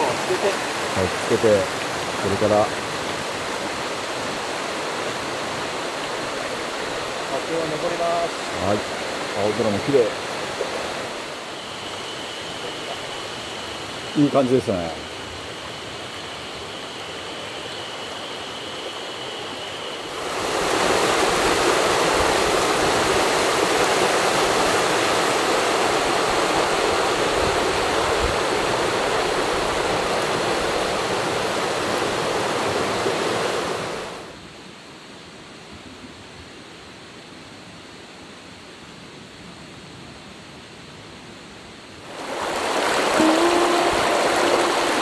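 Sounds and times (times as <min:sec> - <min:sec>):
river water flowing: 0:00.0 - 0:35.0, 0:41.6 - 0:45.0.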